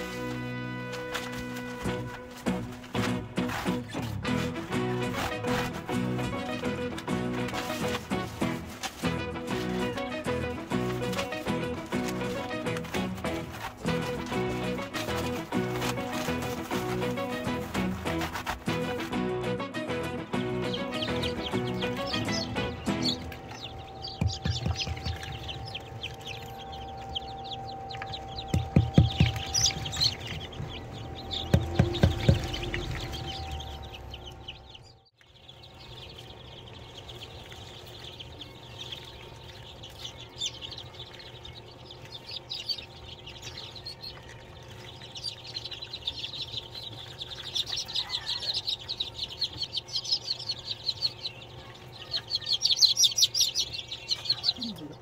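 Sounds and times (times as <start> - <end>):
chicks peeping: 0.0 - 55.0
loud low thumps: 28.4 - 33.9.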